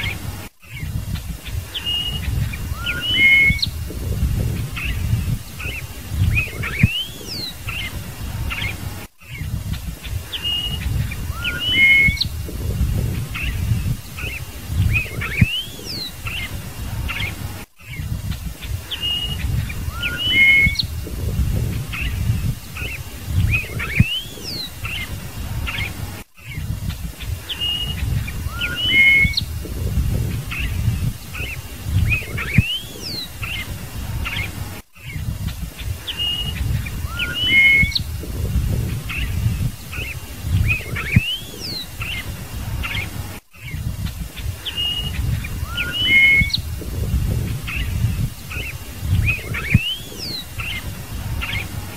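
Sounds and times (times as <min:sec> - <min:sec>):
bird singing whistled notes: 0:00.0 - 0:51.8
low rumble: 0:03.7 - 0:06.9, 0:12.2 - 0:15.4, 0:20.8 - 0:24.0, 0:29.4 - 0:31.3, 0:38.0 - 0:39.8, 0:46.6 - 0:48.4.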